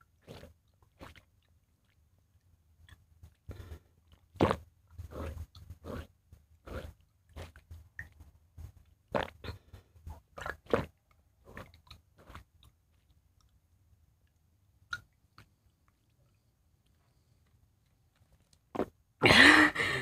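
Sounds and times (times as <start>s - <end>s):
person gulping water: 0.0s - 2.0s, 2.8s - 8.3s, 9.1s - 12.8s.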